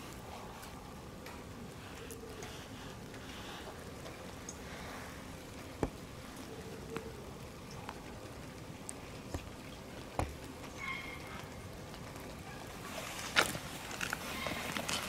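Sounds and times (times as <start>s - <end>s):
light rain on asphalt: 0.0s - 15.0s
drip ticks: 2.0s - 4.7s, 5.4s - 12.4s.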